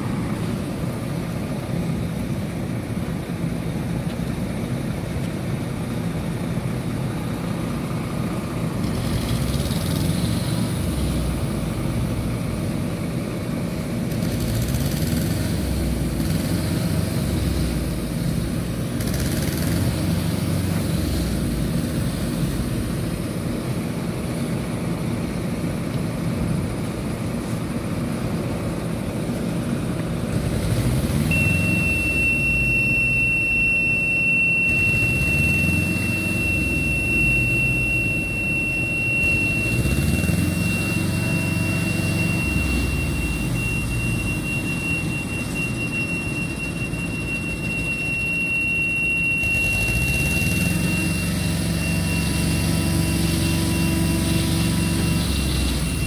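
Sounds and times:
heavy truck engine revving: 0:06.8 - 0:23.6, 0:29.6 - 0:48.0, 0:49.2 - 0:56.0
high-pitched whine: 0:26.9 - 0:56.0.

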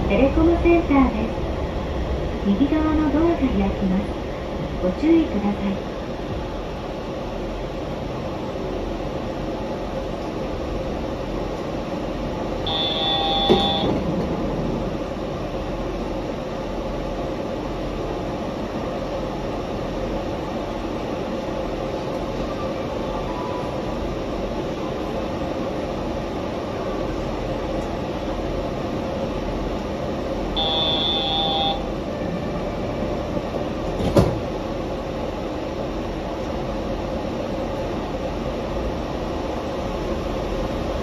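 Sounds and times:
train humming: 0:00.0 - 0:41.0
train doors shutting clunk: 0:12.7 - 0:14.9, 0:33.6 - 0:34.7.

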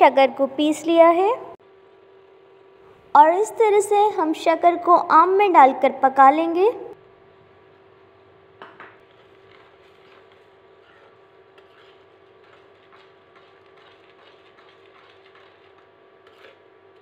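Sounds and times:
cooktop hum: 0:00.0 - 0:17.0
spoon scraping metal pan: 0:10.9 - 0:16.6.

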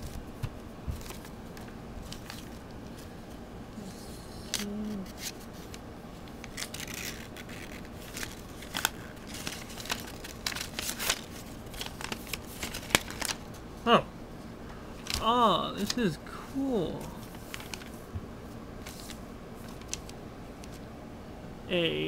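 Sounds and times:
paper rustling and crinkling: 0:00.0 - 0:03.1, 0:04.5 - 0:13.6, 0:17.0 - 0:18.1, 0:18.8 - 0:20.8.

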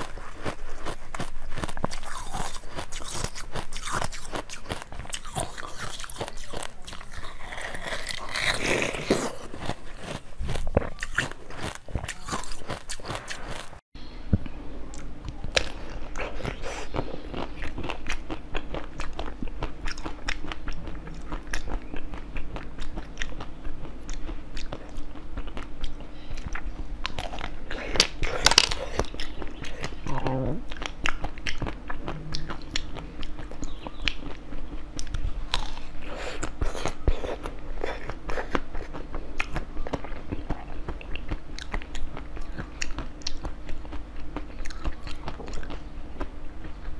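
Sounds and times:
crisp crunching and chewing: 0:00.0 - 0:13.8, 0:14.9 - 0:46.9
jelly being bitten and sucked: 0:00.0 - 0:13.8
steady low hum: 0:00.0 - 0:46.9.

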